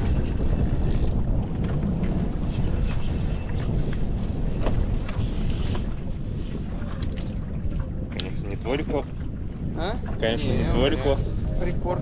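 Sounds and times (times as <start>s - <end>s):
boat low rumble: 0.0s - 12.0s
water noise: 0.0s - 12.0s
wind: 0.0s - 12.0s.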